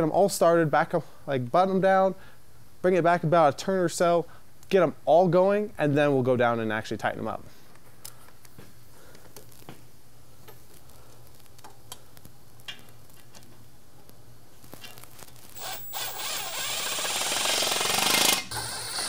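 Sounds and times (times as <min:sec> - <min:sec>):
cordless driver spinning bolt: 0:15.6 - 0:19.0.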